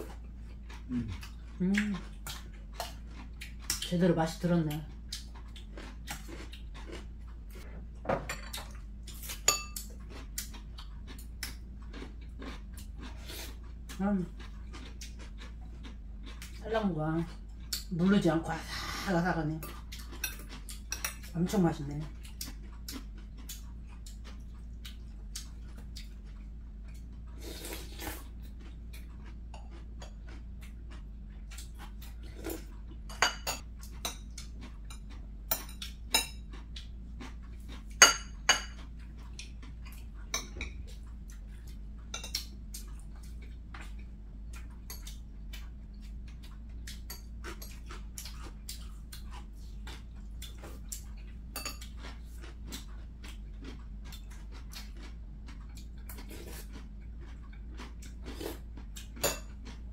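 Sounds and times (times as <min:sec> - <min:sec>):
cutlery clinking on glass bowls: 0:09.5 - 0:09.9, 0:33.1 - 0:34.2, 0:38.0 - 0:38.8, 0:51.6 - 0:51.8, 0:59.2 - 0:59.5.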